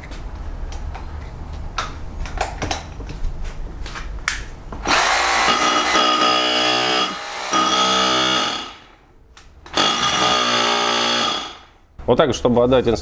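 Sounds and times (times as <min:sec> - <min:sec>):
rotary hammer motor whine: 0:04.8 - 0:09.0, 0:09.7 - 0:11.8.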